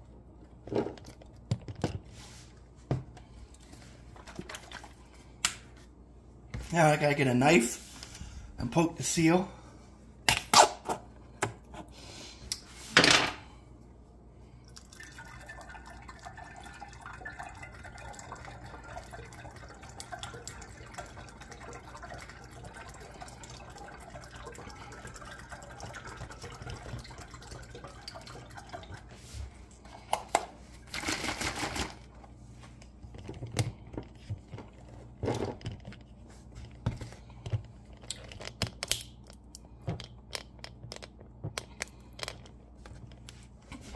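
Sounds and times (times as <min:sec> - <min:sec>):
juice pouring through funnel: 0:14.5 - 0:30.1.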